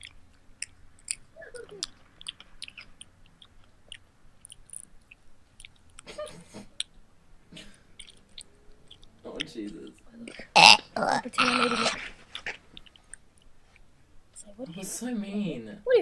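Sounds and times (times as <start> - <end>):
chewing with wet mouth clicks: 0.0 - 6.1, 6.8 - 7.0, 7.6 - 11.4, 12.3 - 14.5.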